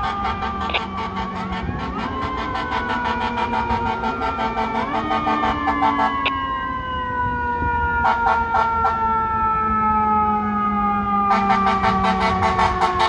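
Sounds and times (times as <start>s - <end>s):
fire engine siren wailing: 0.0s - 13.0s
rapid pulsing siren: 0.0s - 13.0s.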